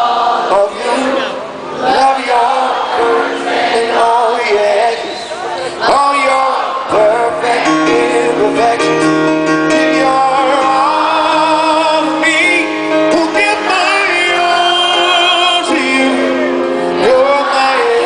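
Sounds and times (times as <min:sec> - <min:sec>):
live ballad with band: 0:00.0 - 0:18.0.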